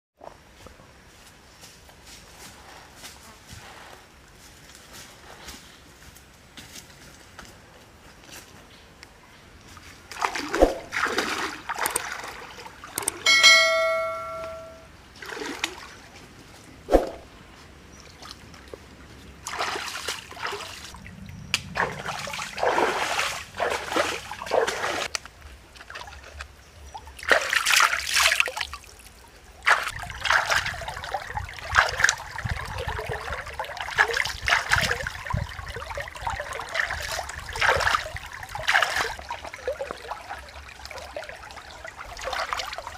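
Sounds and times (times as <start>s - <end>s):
water splashing in a stream: 10.0s - 17.3s, 18.0s - 42.9s
short bell-like ring: 13.3s - 14.9s.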